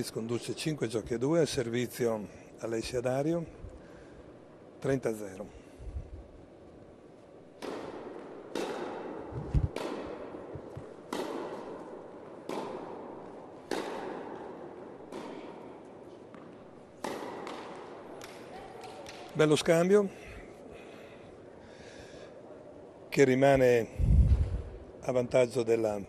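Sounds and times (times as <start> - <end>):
tennis ball racket hits: 7.6 - 19.4.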